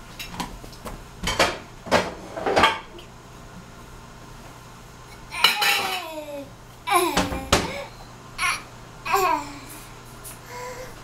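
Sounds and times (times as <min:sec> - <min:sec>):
baby's voice: 0:05.3 - 0:09.7.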